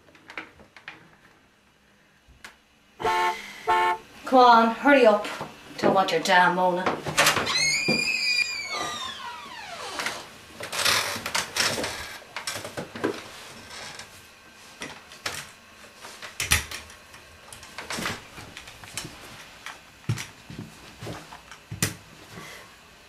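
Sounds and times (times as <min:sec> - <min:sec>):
falling creak: 0:07.5 - 0:12.2, 0:13.6 - 0:14.1.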